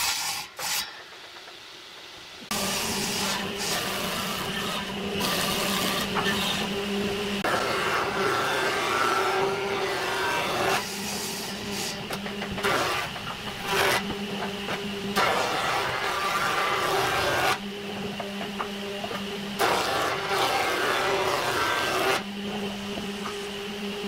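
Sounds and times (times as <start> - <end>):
wood shaving rush: 7.4 - 14.2, 15.2 - 17.6, 19.6 - 22.2.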